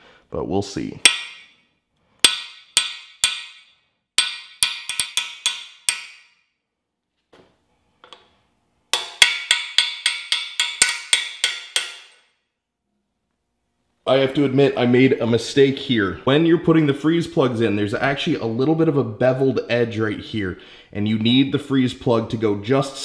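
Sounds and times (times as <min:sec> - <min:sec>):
hammer striking metal socket: 0:01.0 - 0:01.6, 0:02.2 - 0:06.3, 0:08.9 - 0:12.3.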